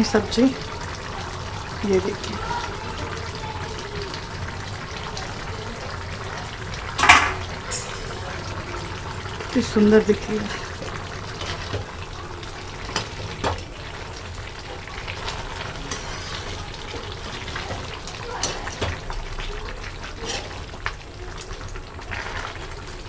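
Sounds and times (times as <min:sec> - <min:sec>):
curry simmering and sizzling: 0:00.0 - 0:23.0
ladle scraping and clinking pan: 0:15.3 - 0:16.6, 0:19.9 - 0:20.8.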